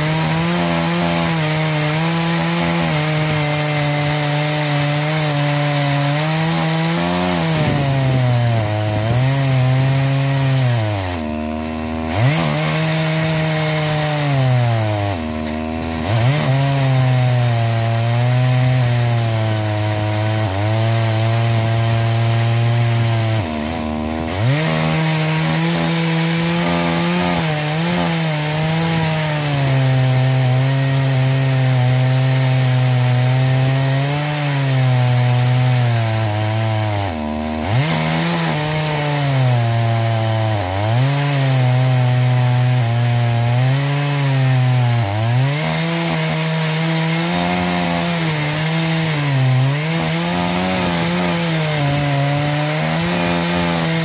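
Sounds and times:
chainsaw cutting log at high revs: 0.0s - 54.0s.

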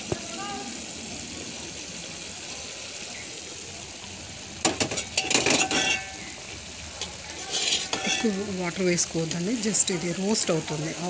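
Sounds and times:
food sizzling in a frying pan: 0.0s - 11.0s
metal clinks and scrapes on pan: 4.6s - 8.6s.

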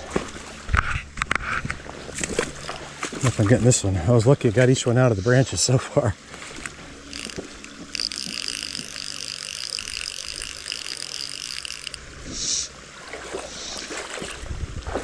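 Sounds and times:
fishing reel ratcheting: 6.5s - 12.4s.

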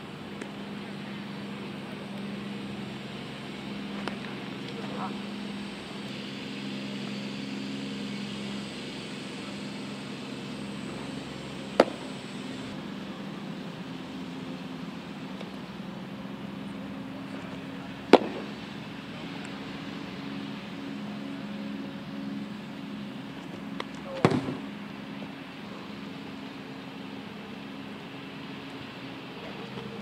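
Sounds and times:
steady low hum: 0.0s - 30.0s.

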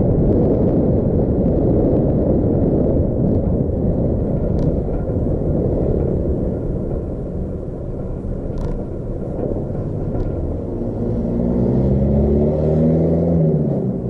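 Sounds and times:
vehicle and road rumble: 0.0s - 14.0s
truck engine passing: 9.8s - 14.0s.

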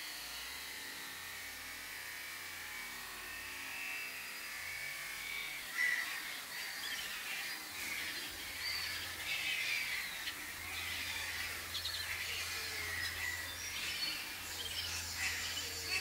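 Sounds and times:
wading birds calling: 5.7s - 16.0s.

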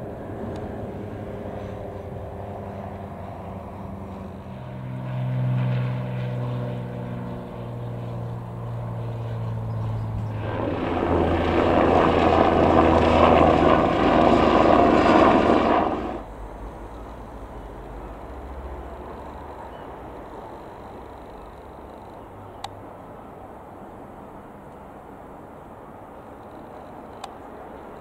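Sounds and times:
propeller aircraft engine droning: 0.0s - 28.0s
rushing noise of passing aircraft: 0.0s - 28.0s.

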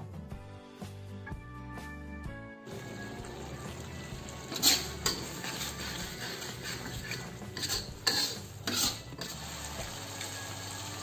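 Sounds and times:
metal spatula scraping a wok: 4.2s - 10.4s.

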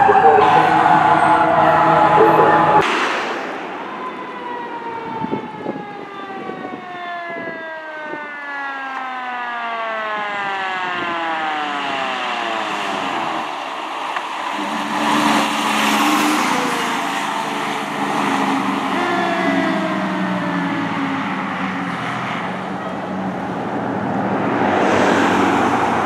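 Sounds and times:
mechanical siren winding down: 0.0s - 2.9s, 14.5s - 22.0s.

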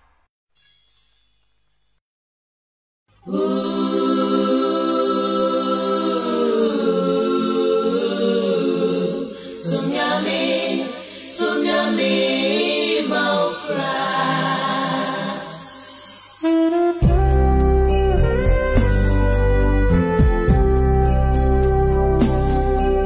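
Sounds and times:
choir singing a cappella: 3.2s - 17.2s.

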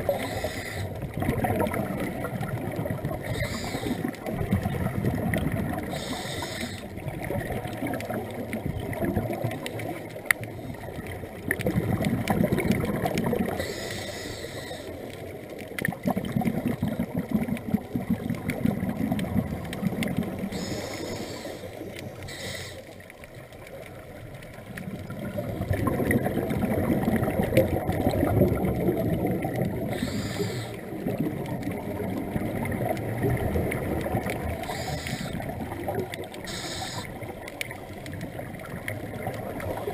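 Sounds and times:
underwater bubbles rumbling: 0.0s - 39.9s
regulator inhalation hiss: 0.1s - 0.9s, 3.3s - 4.1s, 5.9s - 6.9s, 13.6s - 15.0s, 20.5s - 23.0s, 29.9s - 30.8s, 34.6s - 35.4s, 36.4s - 37.2s.

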